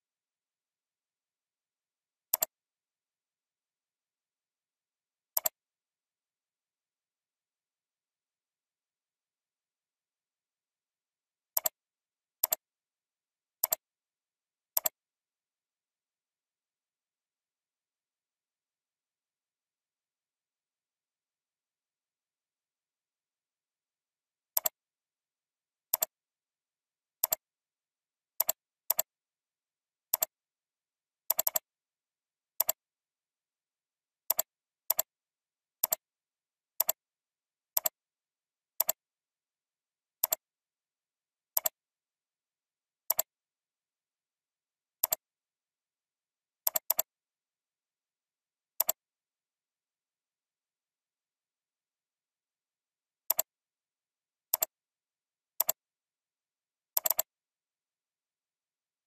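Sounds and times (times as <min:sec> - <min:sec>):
computer mouse clicking: 0:05.4 - 0:05.6, 0:11.6 - 0:11.8, 0:12.4 - 0:12.6, 0:13.6 - 0:13.8, 0:14.8 - 0:15.0, 0:24.6 - 0:24.8, 0:25.9 - 0:26.1, 0:27.2 - 0:27.4, 0:28.4 - 0:29.1, 0:30.1 - 0:30.3, 0:31.3 - 0:31.7, 0:32.6 - 0:32.8, 0:34.3 - 0:35.1, 0:35.8 - 0:36.0, 0:36.8 - 0:37.0, 0:37.8 - 0:38.0, 0:38.8 - 0:39.0, 0:40.2 - 0:40.4, 0:41.5 - 0:41.8, 0:43.1 - 0:43.3, 0:45.0 - 0:45.2, 0:46.7 - 0:47.1, 0:48.8 - 0:49.0, 0:53.3 - 0:53.5, 0:54.5 - 0:54.8, 0:55.6 - 0:55.8, 0:57.0 - 0:57.3.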